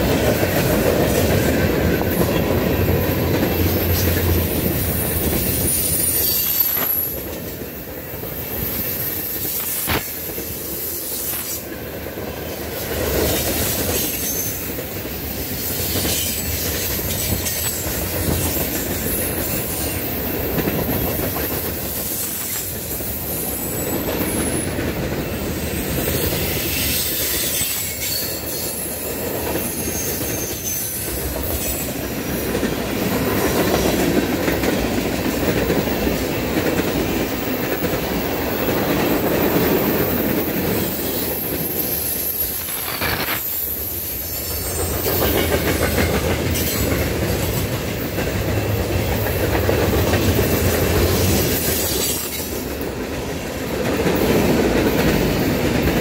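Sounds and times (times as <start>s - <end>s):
train wheels rumbling on rails: 0.0s - 56.0s
high wheel squeal: 4.9s - 7.2s, 14.0s - 14.7s, 25.8s - 31.9s, 40.8s - 45.4s.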